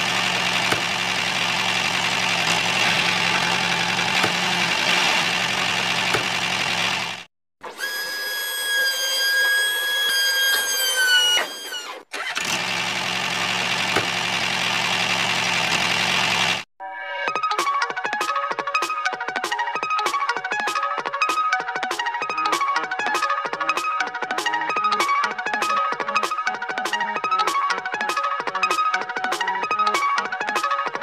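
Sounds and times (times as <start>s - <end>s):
high motor whine: 0.0s - 16.6s
toy motor buzzing whir: 7.6s - 12.7s.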